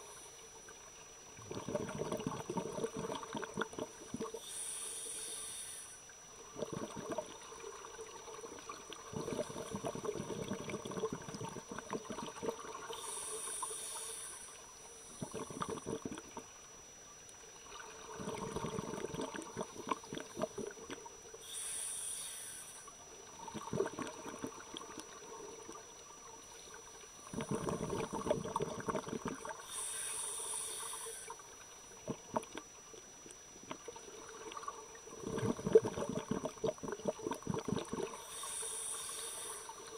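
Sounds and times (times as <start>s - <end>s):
exhaust bubbles gurgling: 0.0s - 4.6s, 6.4s - 16.6s, 17.6s - 21.4s, 22.8s - 39.9s
regulator inhale hiss: 4.2s - 6.2s, 12.8s - 16.1s, 21.4s - 23.0s, 29.3s - 31.6s, 38.0s - 39.9s.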